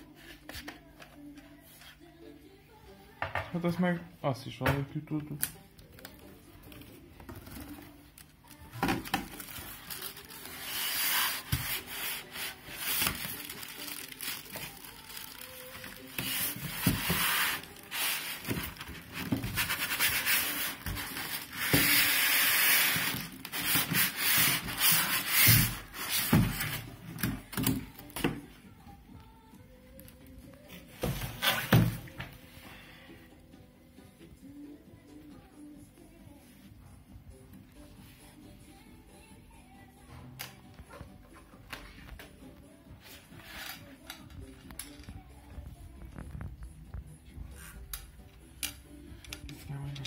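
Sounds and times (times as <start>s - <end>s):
foam and cardboard scraping: 16.2s - 26.9s.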